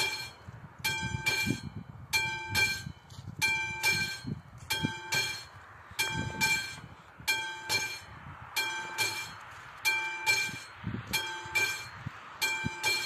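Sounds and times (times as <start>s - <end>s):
level-crossing warning bell: 0.0s - 13.0s.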